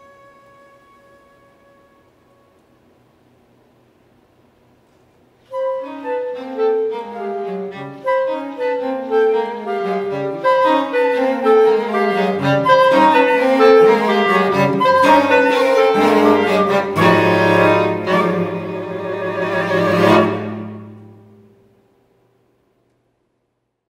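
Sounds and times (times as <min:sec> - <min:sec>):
chamber quartet playing: 0:05.5 - 0:21.7.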